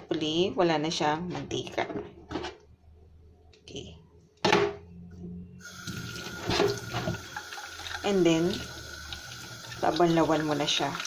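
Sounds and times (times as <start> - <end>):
tap water running into sink: 5.6 - 11.0.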